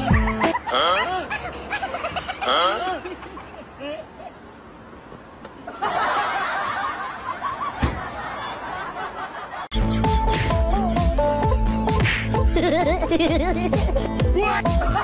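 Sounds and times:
people laughing: 0:00.0 - 0:04.3, 0:05.6 - 0:09.7, 0:12.5 - 0:15.0.

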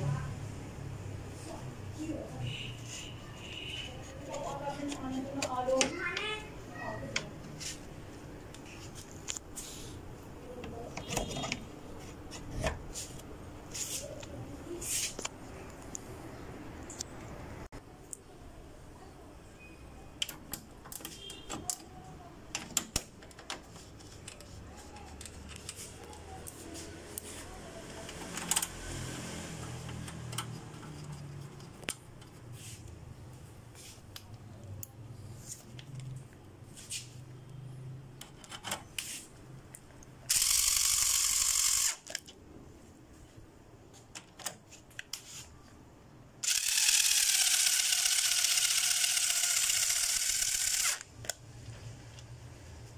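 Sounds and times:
cordless screwdriver whirring: 0:40.3 - 0:42.2, 0:46.4 - 0:51.1.

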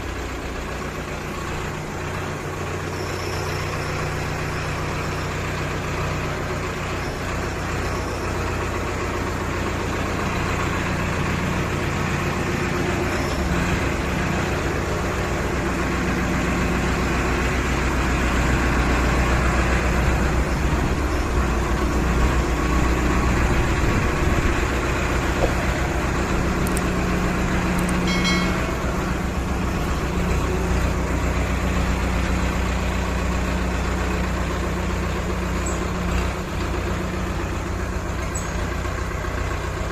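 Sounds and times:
tractor diesel engine running: 0:00.0 - 0:39.9.

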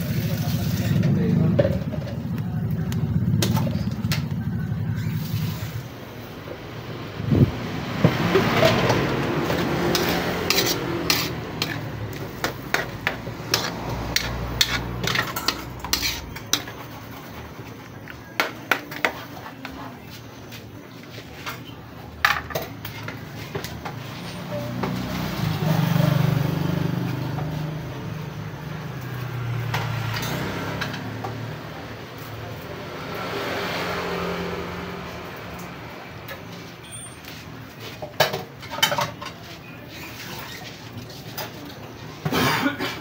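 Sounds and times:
vehicle engine passing: 0:00.0 - 0:17.8, 0:23.3 - 0:37.4.

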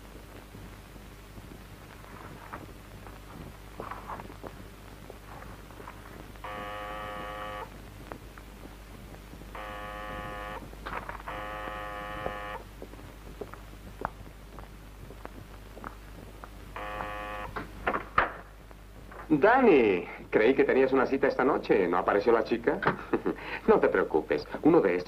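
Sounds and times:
electric door buzzer: 0:06.4 - 0:07.7, 0:09.6 - 0:12.6, 0:16.8 - 0:17.6.

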